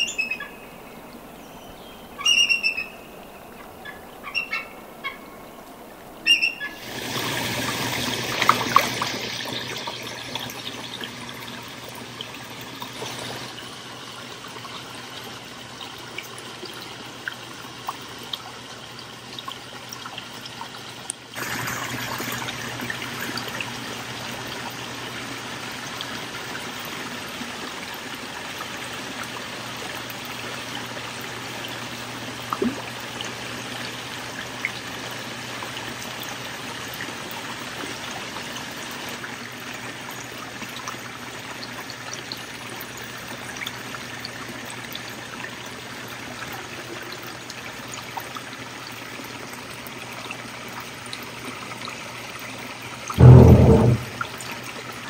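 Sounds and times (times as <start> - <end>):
water trickling into pond: 0.0 - 55.0.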